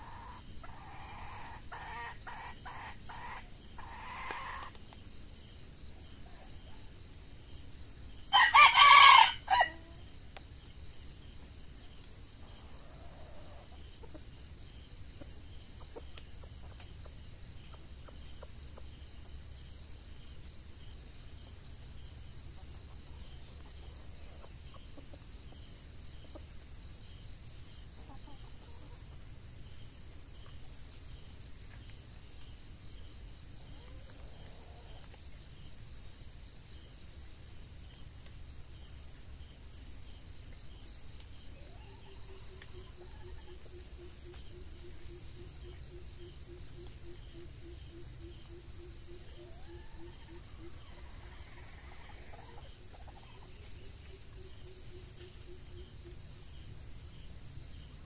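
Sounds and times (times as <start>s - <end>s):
junglefowl calls: 0.0s - 4.8s, 8.3s - 10.0s, 41.6s - 56.2s
crickets and insects droning: 0.0s - 58.0s.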